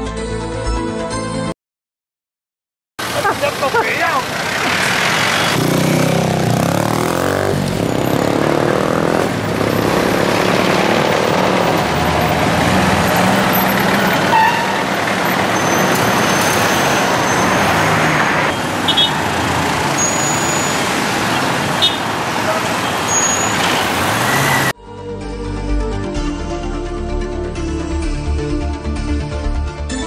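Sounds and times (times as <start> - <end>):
traffic engines running: 3.0 - 24.8
motorcycle engine close by: 4.3 - 12.4.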